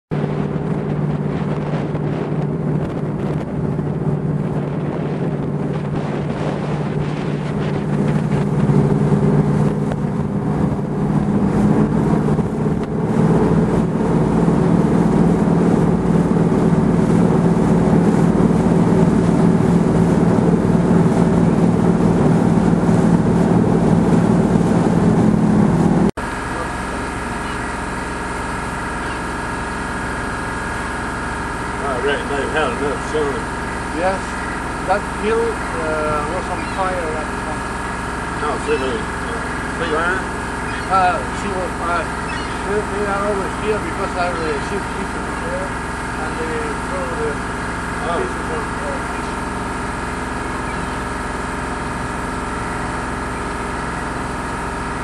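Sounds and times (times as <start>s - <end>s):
wind buffeting microphone: 0.1s - 53.5s
boat engine running: 0.1s - 55.0s.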